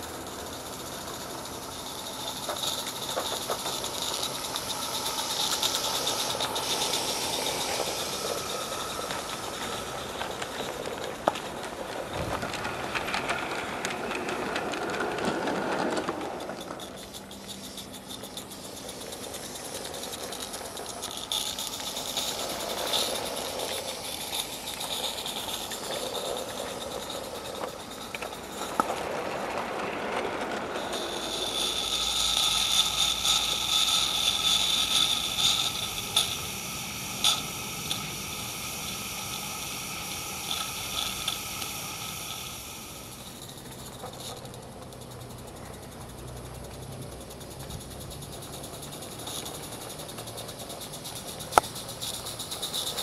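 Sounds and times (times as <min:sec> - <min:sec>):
high steam hiss: 0:00.0 - 0:53.0
model train wagons rolling on rails: 0:00.0 - 0:53.0.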